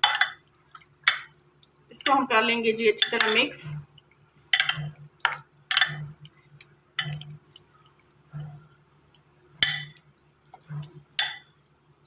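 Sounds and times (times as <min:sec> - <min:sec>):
spoon scraping glass bowl: 0:03.0 - 0:03.8, 0:04.6 - 0:06.1.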